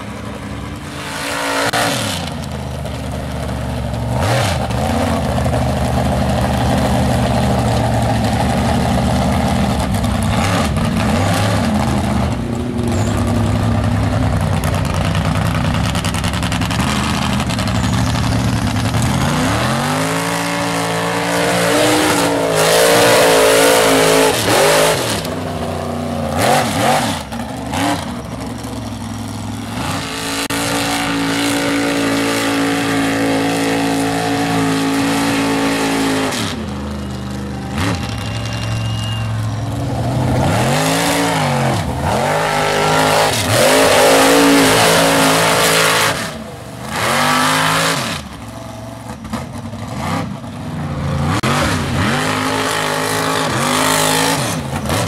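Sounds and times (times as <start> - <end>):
truck engines revving: 0.0 - 55.0.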